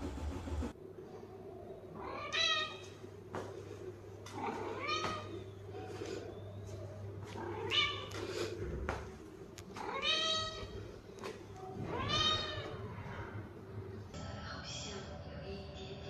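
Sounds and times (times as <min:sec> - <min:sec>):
faint low hum: 0:00.0 - 0:16.0
cat meowing: 0:02.0 - 0:03.0, 0:04.4 - 0:05.4, 0:07.4 - 0:08.2, 0:09.7 - 0:10.8, 0:11.7 - 0:13.0.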